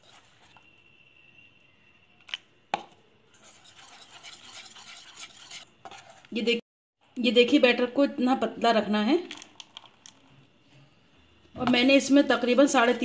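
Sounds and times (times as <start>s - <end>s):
whisk beating batter: 3.3s - 6.2s.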